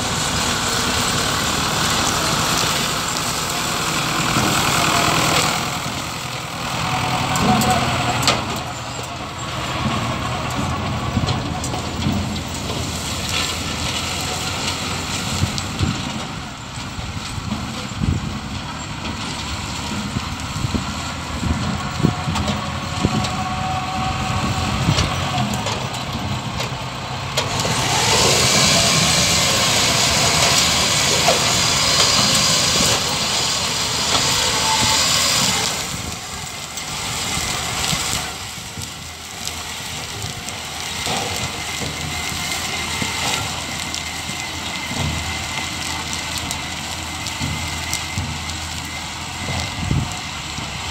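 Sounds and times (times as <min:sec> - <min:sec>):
loud steady hiss: 0:00.0 - 0:50.9
tractor and harvester engines: 0:00.0 - 0:50.9.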